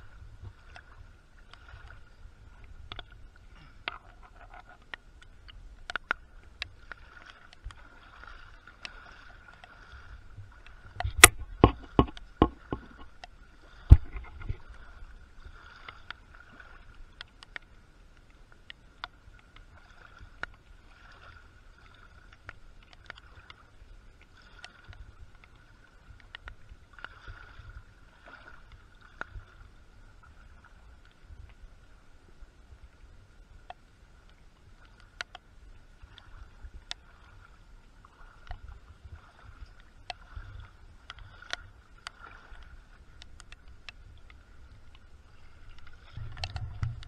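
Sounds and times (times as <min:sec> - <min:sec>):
wading through shallow water: 0:00.0 - 0:47.0
sharp splashes or knocks: 0:11.0 - 0:13.1, 0:46.0 - 0:47.0.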